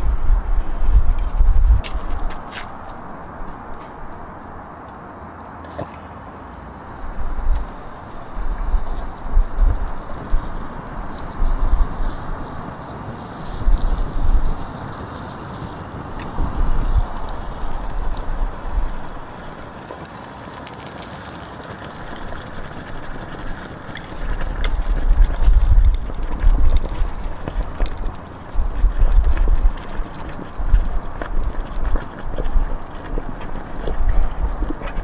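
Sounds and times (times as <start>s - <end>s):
low rumbles: 0.0s - 4.6s, 24.1s - 35.0s
rushing fire noise: 0.0s - 35.0s.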